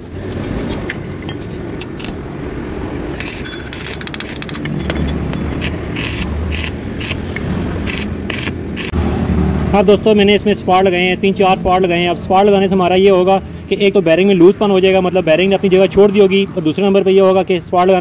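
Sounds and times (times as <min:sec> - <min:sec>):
sharp welding strikes: 0:05.6 - 0:09.0
welding arc crackling: 0:05.6 - 0:09.0.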